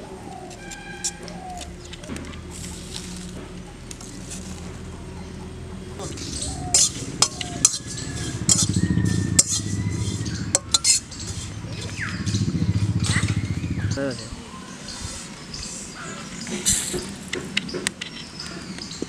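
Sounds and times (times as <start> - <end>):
metal spatula scraping wok: 6.3 - 11.6.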